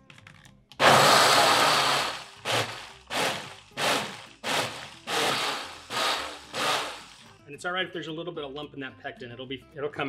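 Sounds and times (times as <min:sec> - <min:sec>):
blender motor pulsing: 0:00.8 - 0:07.4.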